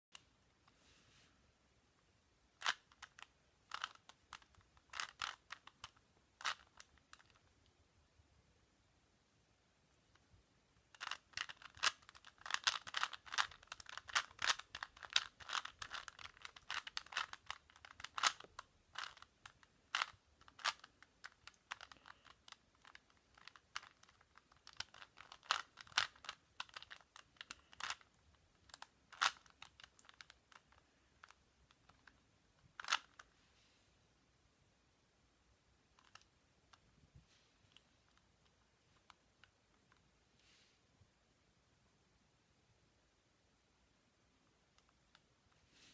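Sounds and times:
rubik's cube layers clicking: 2.6 - 7.5, 10.9 - 33.3, 35.9 - 36.3.

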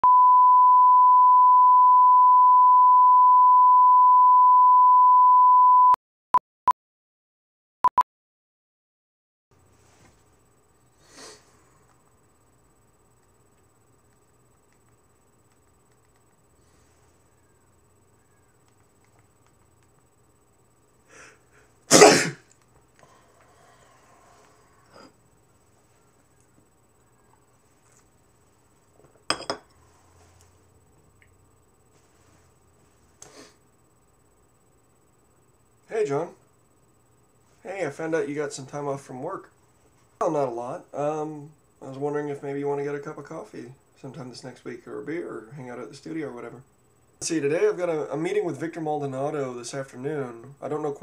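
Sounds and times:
electronic beep tone: 0.0 - 6.0
man sneezing: 21.9 - 22.5.

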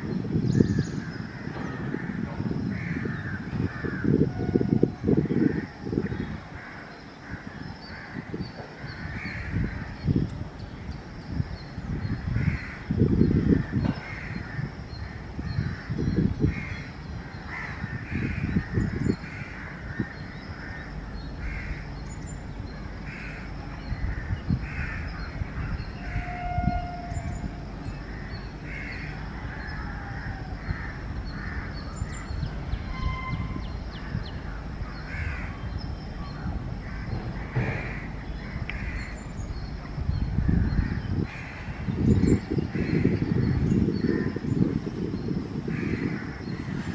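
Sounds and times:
distant train rumble: 0.0 - 46.9
low buffeting: 0.0 - 46.9
crows cawing: 1.0 - 9.9, 12.3 - 12.8, 13.4 - 21.9, 23.1 - 27.5, 28.1 - 32.3, 34.0 - 35.6, 36.3 - 39.1, 40.5 - 42.0, 45.7 - 46.9.

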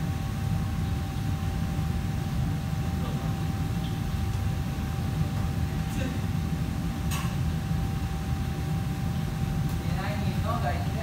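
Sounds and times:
faint constant whine: 0.0 - 11.0
low machinery hum: 0.0 - 11.0.

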